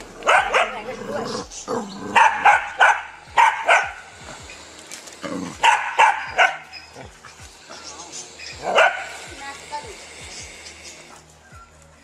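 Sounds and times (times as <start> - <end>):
dog barking: 0.2 - 0.9, 2.1 - 4.1, 5.6 - 6.8, 8.6 - 9.2.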